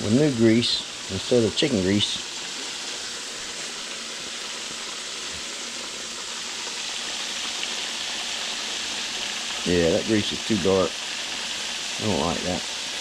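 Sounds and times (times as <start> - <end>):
burgers sizzling in a skillet: 0.0 - 13.0.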